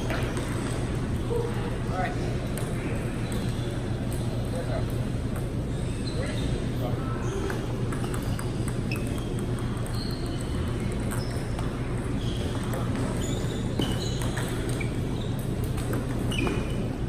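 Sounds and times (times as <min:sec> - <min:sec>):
table tennis balls clicking: 0:00.0 - 0:01.0, 0:07.4 - 0:17.0.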